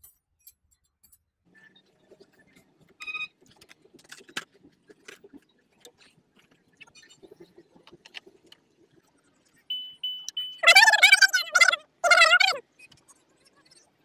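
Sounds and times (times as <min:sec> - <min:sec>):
plastic clicks and rustling: 0:03.5 - 0:06.1
short high beeps: 0:09.7 - 0:11.0.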